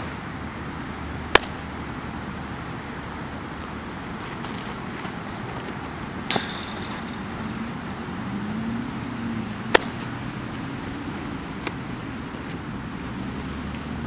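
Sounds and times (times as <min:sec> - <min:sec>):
passing traffic hum: 0:00.0 - 0:14.0
ball popping into mitt: 0:01.3 - 0:01.6, 0:09.7 - 0:10.1
sharp smack: 0:01.3 - 0:01.6, 0:06.3 - 0:07.5, 0:09.7 - 0:10.0.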